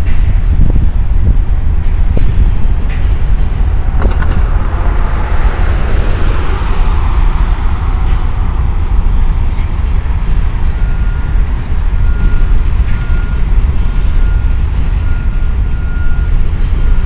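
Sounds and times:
car tyre noise: 0.0 - 17.0
freight train rumbling on bridge: 0.0 - 17.0.

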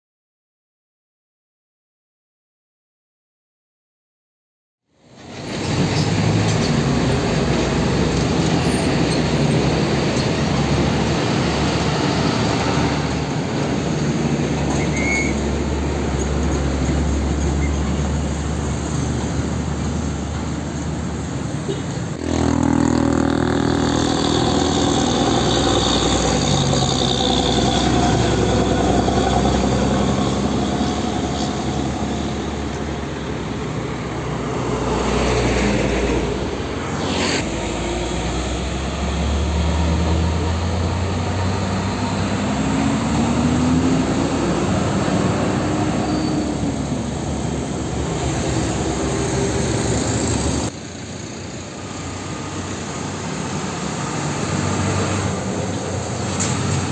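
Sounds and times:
diesel trucks passing: 5.0 - 56.9
motorcycles and cars passing: 15.3 - 56.9.

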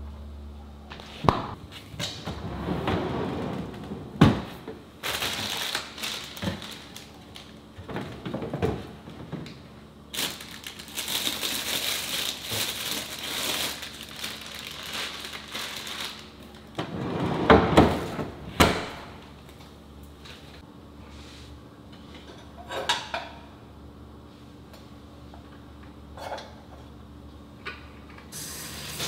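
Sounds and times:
plastic bags rustling: 5.0 - 8.6, 10.0 - 16.8.

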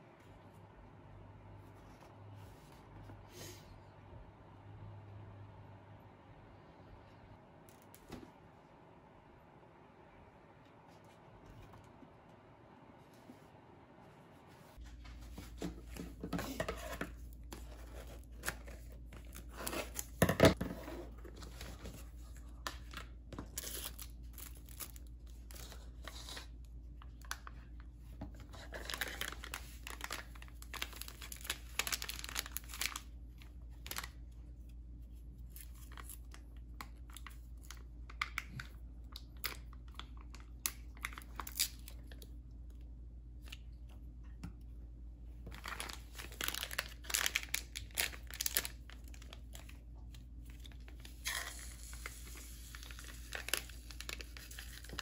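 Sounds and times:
wrappers crinkling and tearing: 22.2 - 27.6, 28.6 - 34.3, 35.4 - 42.3, 45.4 - 55.0.

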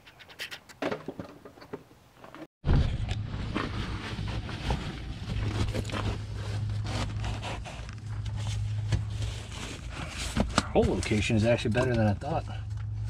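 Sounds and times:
carpet padding rustling and scraping: 3.4 - 12.4.

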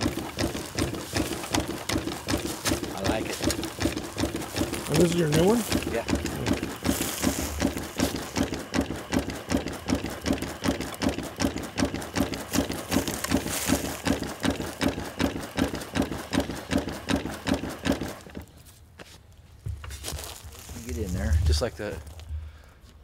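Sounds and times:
dry washer knocking rhythmically: 0.0 - 18.4.

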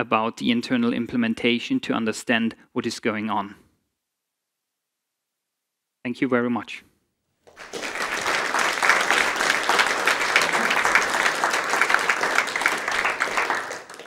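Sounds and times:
audience applauding: 7.5 - 14.0.

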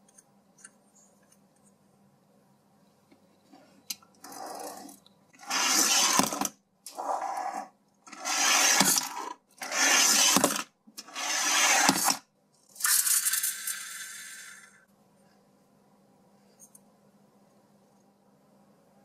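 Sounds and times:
toy car gear motor whirring: 4.2 - 12.2.

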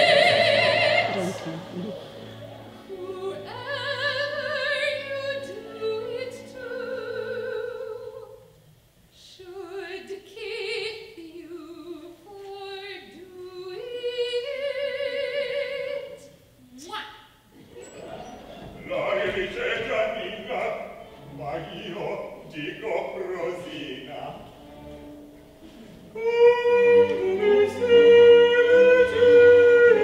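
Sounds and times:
woman singing opera: 0.0 - 2.0, 2.9 - 8.4, 9.2 - 16.3, 26.1 - 30.0.

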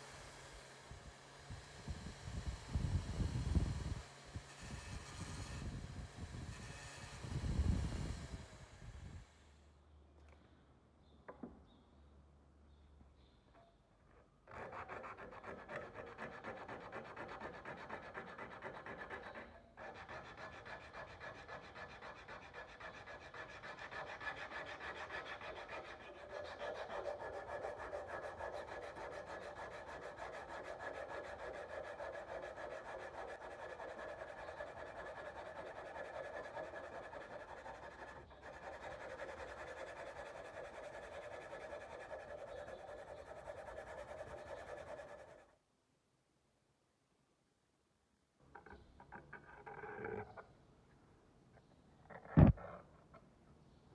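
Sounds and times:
sandpaper scraping steel blade: 14.5 - 45.5.

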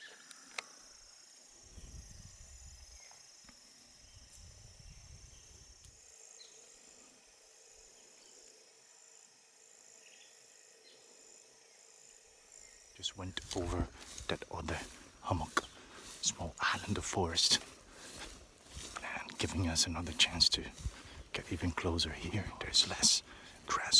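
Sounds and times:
insects chirring: 0.0 - 23.9.

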